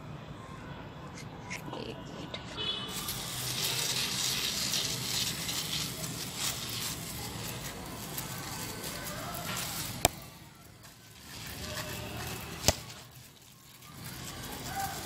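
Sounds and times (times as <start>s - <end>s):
spray bottle hissing squirts: 2.6s - 8.7s.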